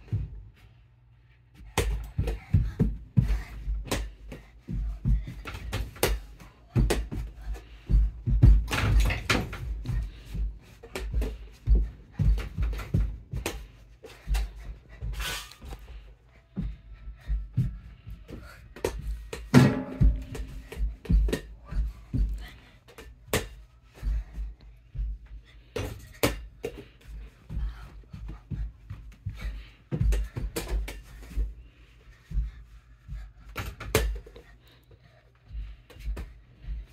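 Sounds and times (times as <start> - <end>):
ball bouncing on hardwood floor: 1.6 - 13.7, 16.6 - 23.6
child running footsteps: 1.6 - 22.6
ball hitting mini hoop: 18.8 - 21.5.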